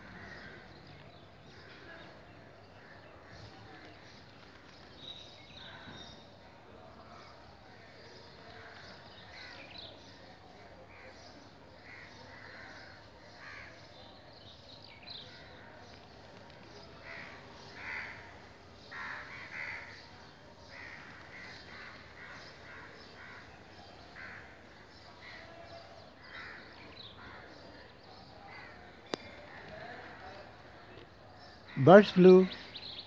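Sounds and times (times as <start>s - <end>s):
crows cawing: 0.0s - 0.7s, 11.8s - 13.8s, 17.0s - 25.5s, 26.2s - 27.6s.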